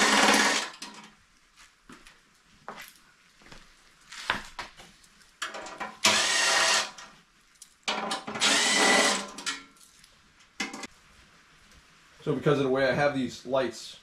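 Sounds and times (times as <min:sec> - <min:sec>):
cordless drill whining: 0:00.0 - 0:00.8, 0:06.0 - 0:07.0, 0:08.3 - 0:09.4.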